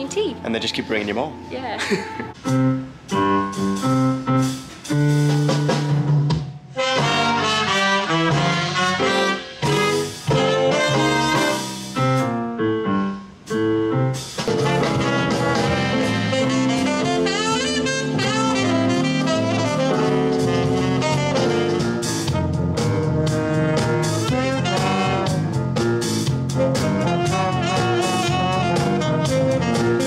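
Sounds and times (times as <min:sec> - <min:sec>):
live jazz band playing: 0:00.0 - 0:30.0
punchy horn phrases: 0:06.7 - 0:12.4, 0:14.2 - 0:30.0.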